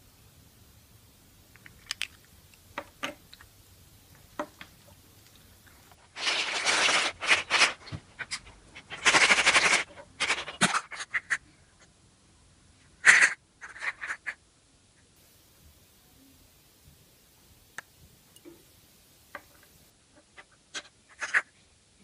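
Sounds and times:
plastic figurines clicking: 1.5 - 3.5
plastic toy egg scraping and crackling: 1.5 - 11.4, 20.7 - 21.5.

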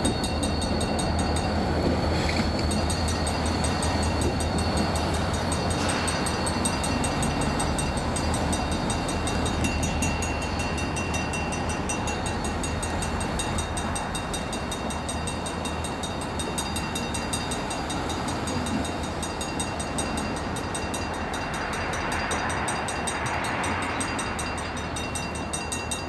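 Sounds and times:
diesel locomotive engines droning: 0.0 - 26.0.

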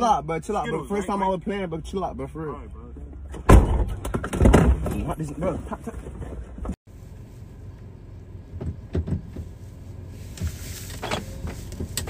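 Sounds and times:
car cabin hum: 5.4 - 12.0
soft knocks and thuds: 8.5 - 9.6.

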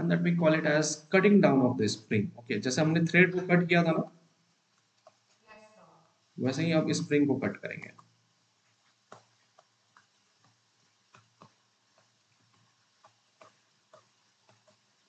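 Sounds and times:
faint room hum: 0.0 - 15.0
stylus tapping writing surface: 9.1 - 14.8.

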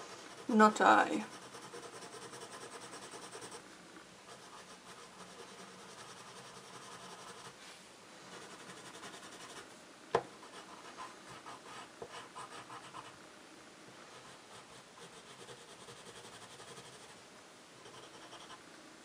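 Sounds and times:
pencil scratching on paper: 0.0 - 3.6, 4.3 - 7.6, 8.3 - 9.6, 10.4 - 13.2, 14.1 - 17.2, 17.8 - 18.6.

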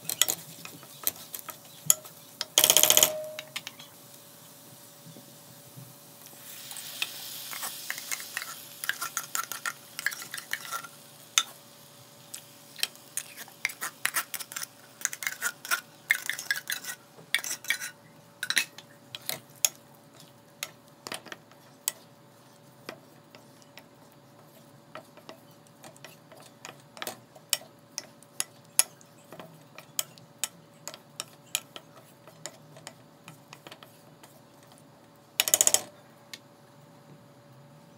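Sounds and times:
spatula scraping a metal wok: 13.1 - 19.4.

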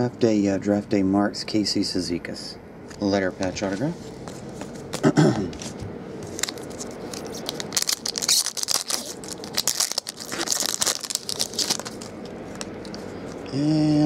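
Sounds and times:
foil wrapper tearing and crinkling: 6.3 - 13.0.

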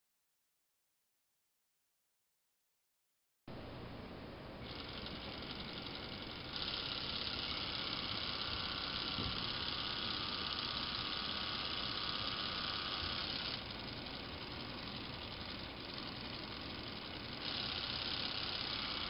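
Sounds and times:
small electric motors whining: 4.6 - 19.0.

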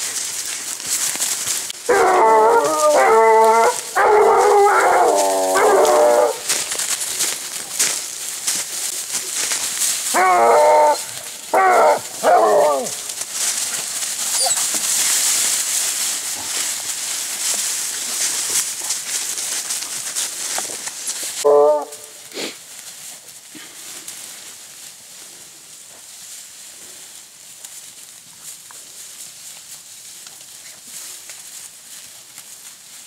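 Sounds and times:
rustle of dry leaves: 0.0 - 33.0
hounds baying: 1.8 - 6.7, 10.1 - 14.7, 21.4 - 22.2.

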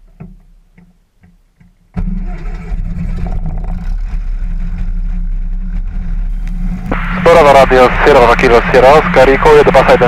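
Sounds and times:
aircraft engine running: 2.0 - 10.0.

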